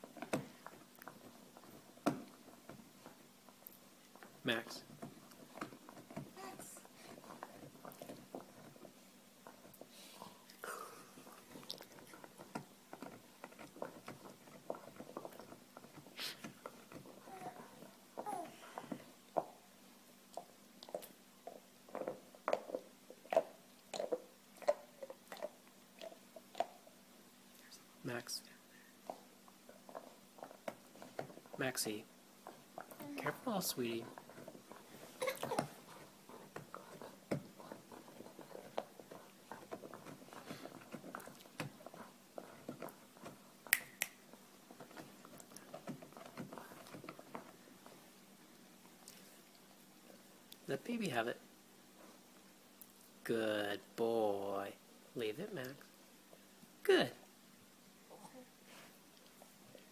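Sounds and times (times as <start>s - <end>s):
dog chewing bone: 5.0s - 10.3s, 11.3s - 18.0s, 20.2s - 27.0s, 29.0s - 31.6s, 32.4s - 43.7s, 44.3s - 49.0s.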